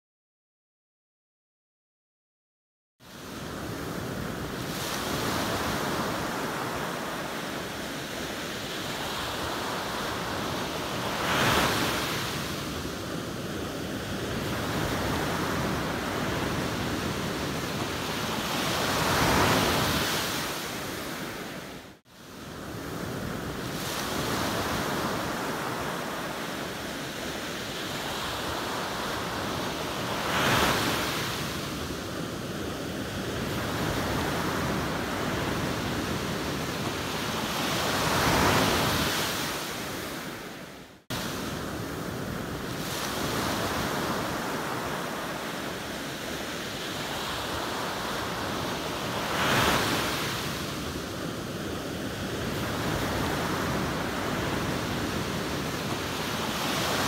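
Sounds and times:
waves breaking: 3.5 - 21.8.

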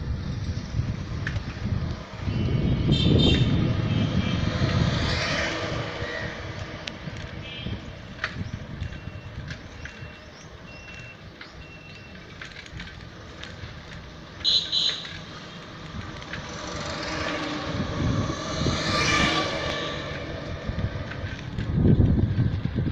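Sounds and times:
traffic rumble: 0.0 - 22.9
car horn honk: 2.4 - 4.5, 14.4 - 15.2.

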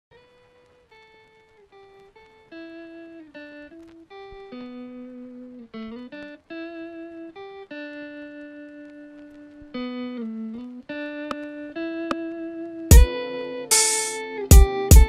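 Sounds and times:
melody of held notes: 9.8 - 15.0.

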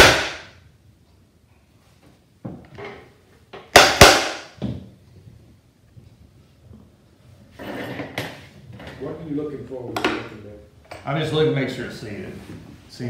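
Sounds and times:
small hammer striking metal: 0.0 - 0.5, 3.7 - 4.6.

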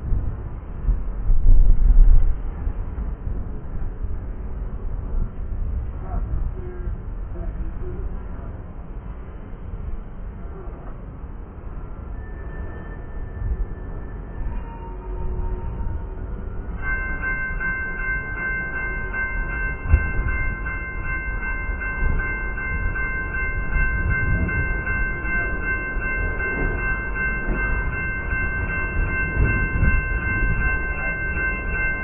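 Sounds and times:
train cars rumbling: 0.0 - 32.0
steady high-pitched tone: 11.6 - 32.0.

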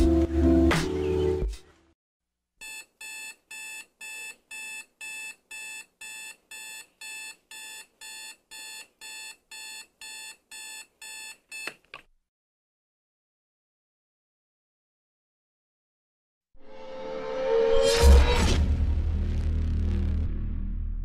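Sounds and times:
alarm clock beeping: 2.6 - 11.7.

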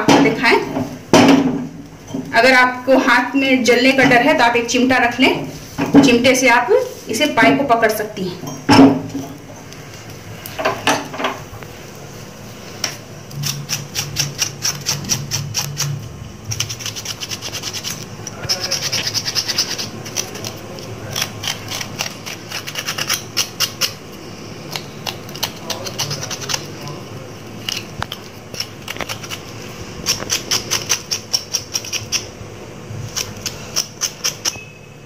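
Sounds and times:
knife scraping skin: 13.3 - 24.0, 24.6 - 26.9, 27.6 - 32.3, 33.0 - 34.7.

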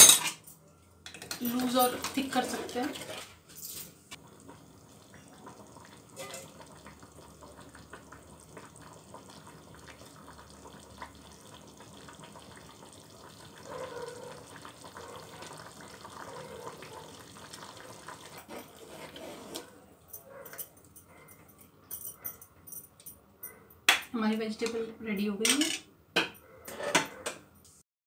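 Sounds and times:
curry bubbling in pot: 4.2 - 19.2.

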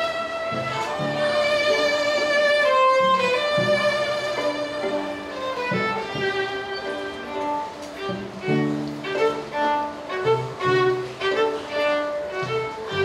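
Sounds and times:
lower accompanying notes: 0.0 - 13.0
violin melody: 0.0 - 13.0.

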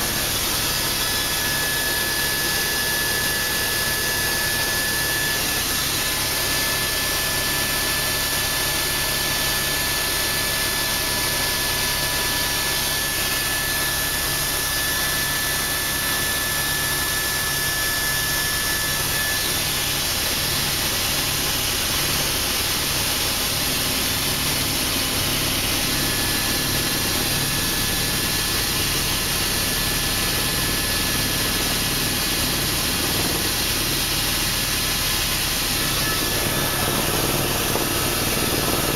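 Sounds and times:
helicopter engine and rotors drone: 0.0 - 38.9
thin high whine: 9.6 - 38.9.

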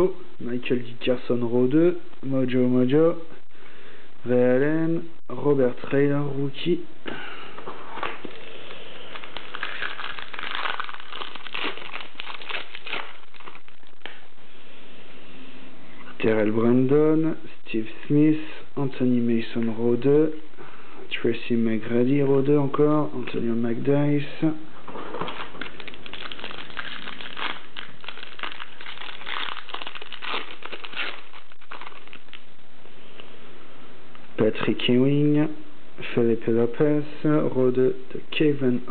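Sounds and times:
foil wrapper crinkling and tearing: 8.3 - 14.2, 25.2 - 32.5.

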